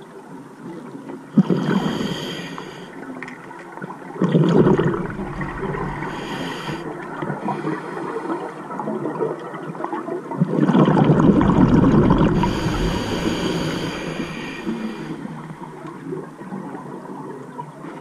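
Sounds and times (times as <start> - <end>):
diver breathing through regulator: 1.4 - 3.0, 4.6 - 8.6, 11.4 - 15.6
exhaled bubbles rushing: 4.0 - 16.9.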